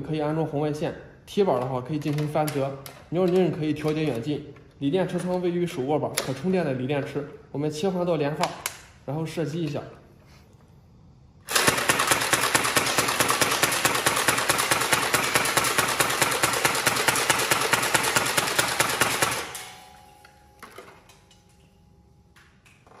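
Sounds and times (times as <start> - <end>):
foam blaster firing full auto: 11.5 - 19.9.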